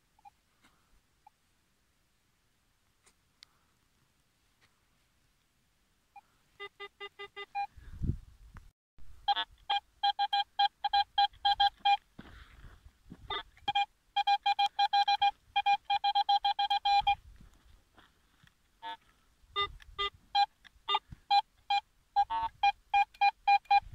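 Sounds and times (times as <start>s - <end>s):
metal detector beeping: 6.2s - 7.7s, 9.2s - 12.1s, 13.2s - 17.2s, 18.8s - 23.9s.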